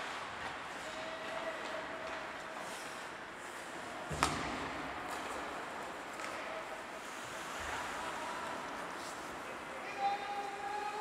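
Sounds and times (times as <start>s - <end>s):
ice rink noise: 0.0s - 11.0s
hit against rink boards: 4.1s - 4.8s.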